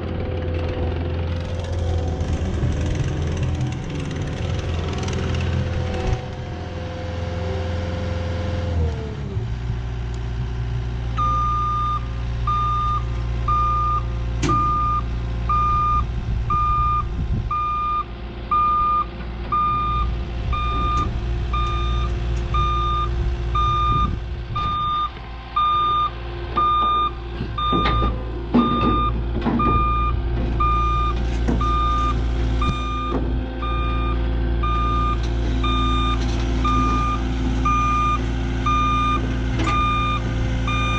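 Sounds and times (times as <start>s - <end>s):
diesel engine running: 0.0s - 40.9s
backup alarm beeping: 11.2s - 40.9s.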